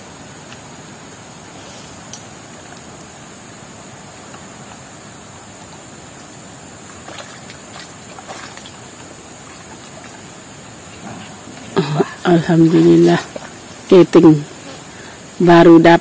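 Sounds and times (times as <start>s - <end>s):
river water rushing: 0.0s - 15.4s
person wading in water: 6.9s - 13.8s.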